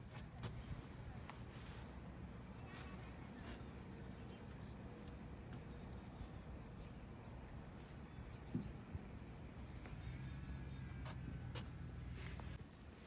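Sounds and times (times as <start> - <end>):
faint insect hum: 0.0 - 13.0
low outdoor rumble: 0.0 - 13.0.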